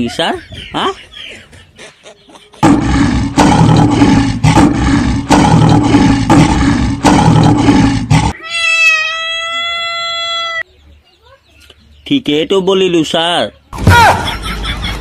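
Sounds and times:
harsh animal-like roar: 2.6s - 8.4s.

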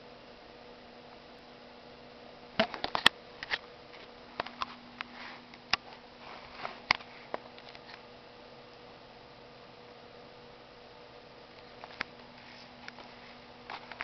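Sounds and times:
soft rustling: 3.9s - 8.0s, 11.7s - 14.0s.

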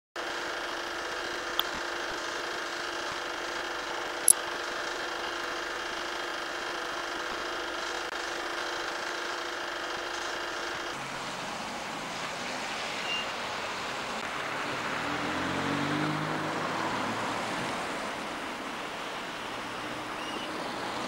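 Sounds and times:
film projector whirring: 0.2s - 11.0s.

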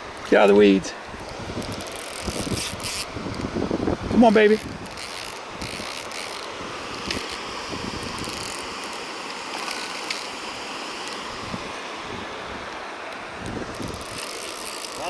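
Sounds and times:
river water rushing: 0.0s - 15.0s
wind: 0.0s - 15.0s
fly reel clicks: 1.2s - 3.6s, 4.2s - 11.3s, 12.7s - 15.0s.

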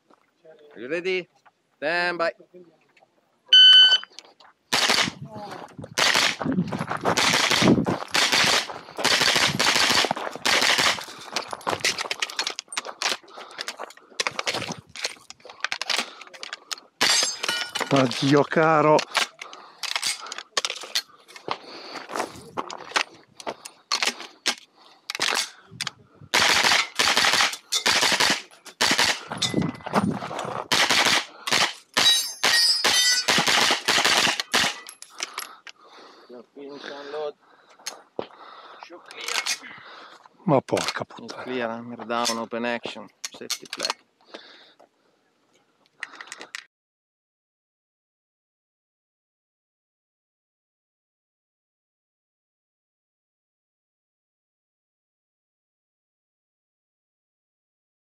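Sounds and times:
gunshots in rapid bursts: 4.7s - 5.2s, 6.0s - 6.4s, 7.1s - 11.1s, 26.3s - 29.3s, 30.7s - 32.2s, 32.8s - 34.9s.

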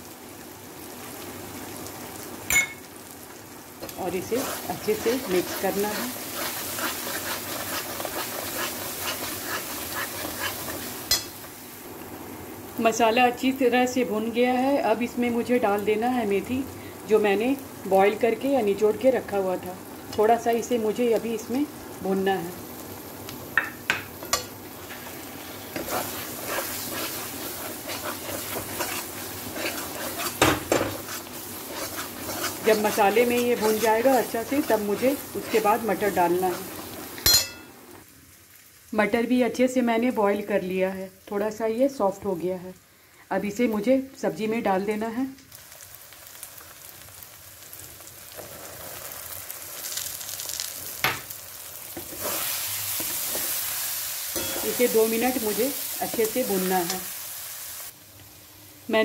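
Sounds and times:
frying sizzle: 0.0s - 59.0s
spatula scraping in a metal pan: 3.8s - 11.3s, 24.3s - 37.6s, 52.1s - 53.6s, 54.3s - 56.4s.

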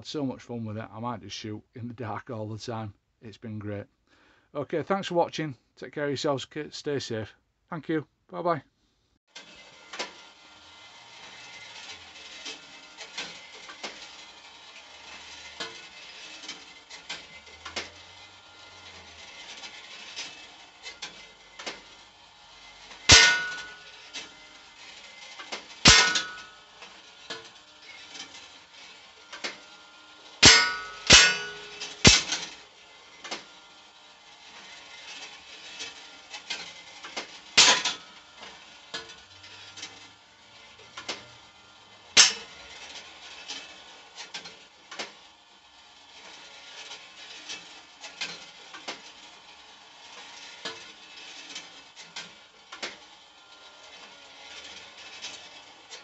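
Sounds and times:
air rifle shots: 23.1s - 23.7s, 25.9s - 26.4s, 30.4s - 32.4s
pellet clanging on steel target: 23.1s - 24.0s, 25.8s - 26.7s, 30.4s - 32.5s, 37.6s - 38.0s, 42.2s - 42.5s.

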